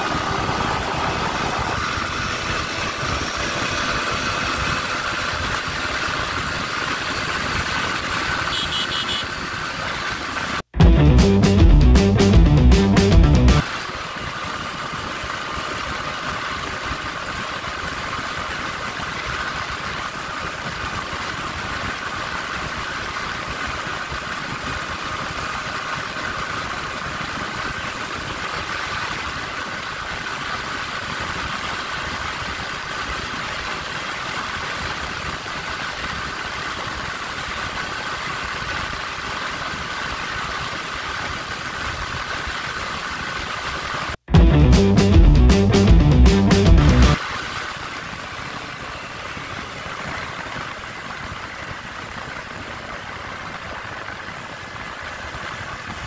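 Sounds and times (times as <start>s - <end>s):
wind rushing: 0.0s - 3.7s
motorcycle engine at high revs: 0.0s - 10.7s.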